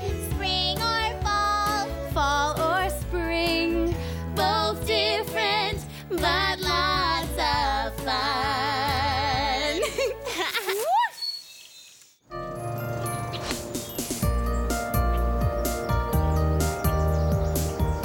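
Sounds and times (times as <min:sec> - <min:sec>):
children's pop song: 0:00.0 - 0:10.3.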